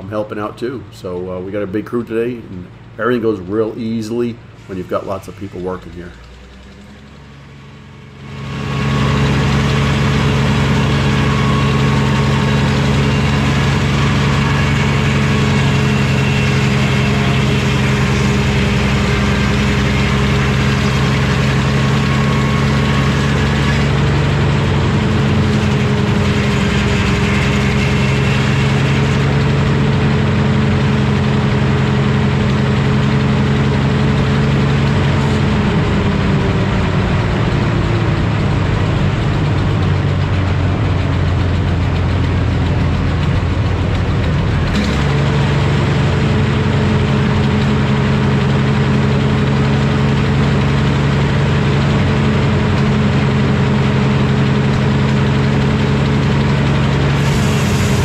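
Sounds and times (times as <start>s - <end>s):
circular sawmill sawing a log: 3.1s - 58.0s.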